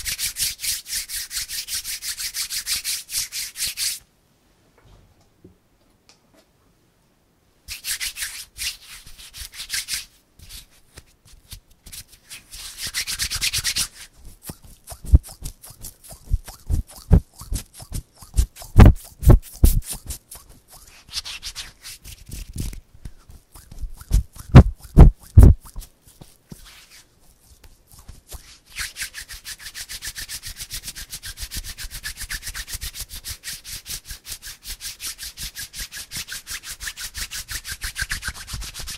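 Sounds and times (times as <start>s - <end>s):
palms rubbing together: 0.0s - 4.0s, 7.7s - 38.9s
hand taps and pats: 18.4s - 20.0s, 24.1s - 25.9s.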